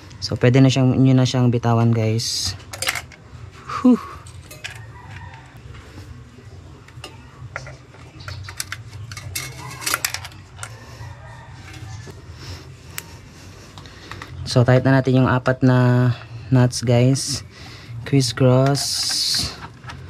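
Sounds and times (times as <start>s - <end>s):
metallic clicks and clinks: 2.6s - 3.2s, 4.2s - 5.5s.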